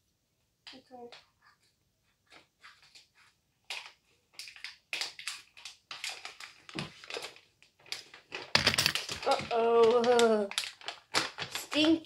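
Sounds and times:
plastic wrapper crinkling: 2.8s - 12.0s.

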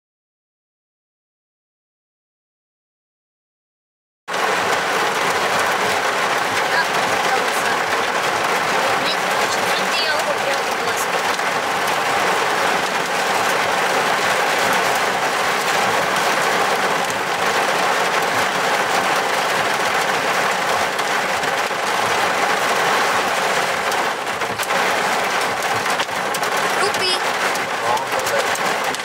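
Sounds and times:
heavy rain downpour: 4.3s - 29.0s.

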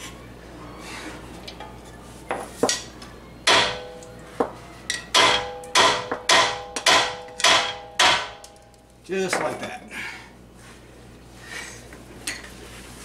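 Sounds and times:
hammer striking steel: 2.7s - 8.6s.

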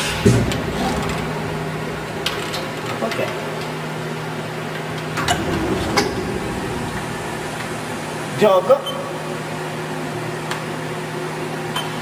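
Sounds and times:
milling machine humming: 4.9s - 8.6s.

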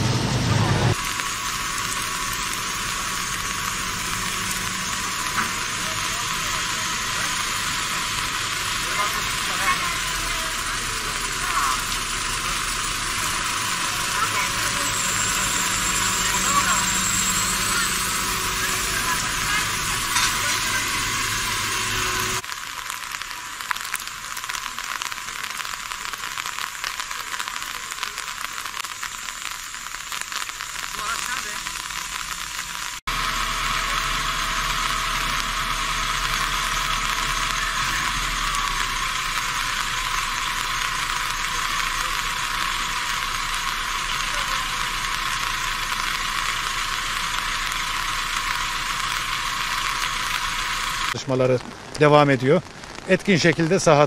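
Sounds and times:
low rumble: 0.0s - 22.5s
heavy rain falling: 0.0s - 54.0s.

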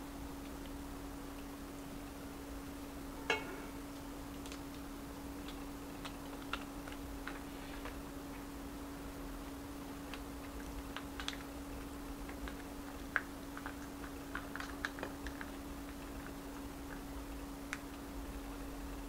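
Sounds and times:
steady low hum: 0.0s - 19.0s
rice paper crackling: 3.7s - 18.1s.

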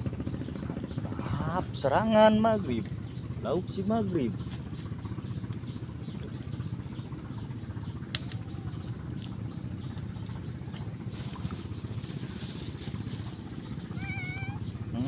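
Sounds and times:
small motor running: 8.6s - 15.0s.

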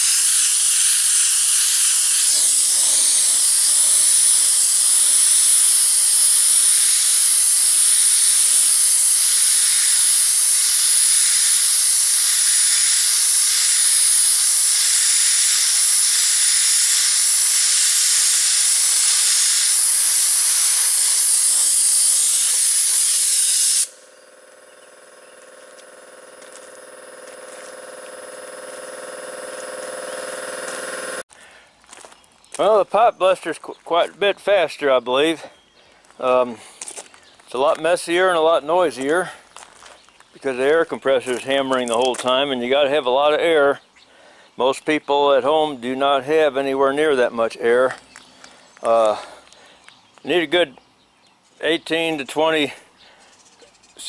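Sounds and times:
sandblaster hissing: 0.0s - 31.2s.

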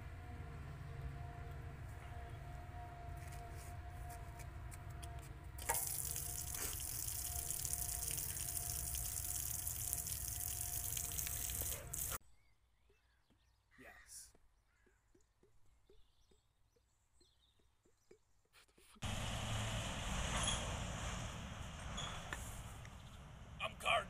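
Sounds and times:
water gushing from garden hose: 5.6s - 12.2s.

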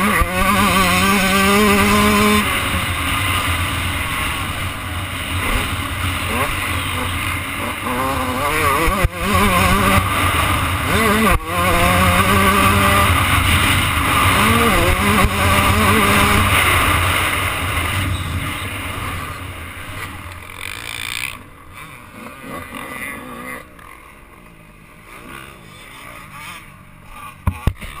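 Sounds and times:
dirt bike engine revving: 0.0s - 28.0s
wind rushing over microphone: 8.3s - 19.9s.

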